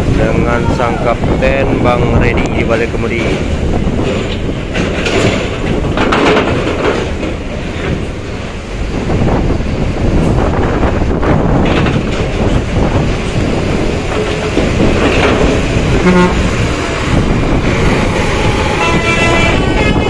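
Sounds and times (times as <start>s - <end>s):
bus engine driving by: 7.1s - 20.0s
bus horn: 15.9s - 16.8s, 18.0s - 20.0s.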